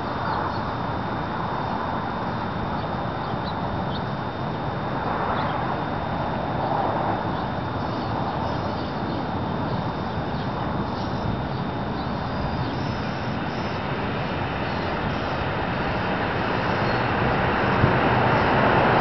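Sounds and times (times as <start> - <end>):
dual-tone warning siren: 8.6 - 19.0.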